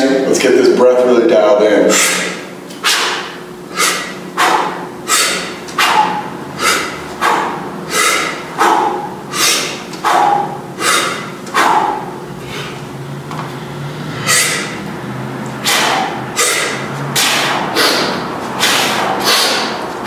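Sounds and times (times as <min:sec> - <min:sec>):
man exhaling forcefully: 0:01.9 - 0:12.8, 0:14.1 - 0:14.9, 0:15.6 - 0:19.9.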